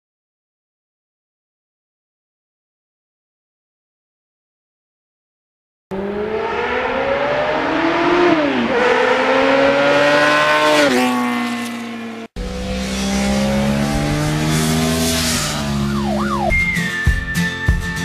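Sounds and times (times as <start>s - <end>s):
motorcycle engine accelerating: 5.9s - 16.6s.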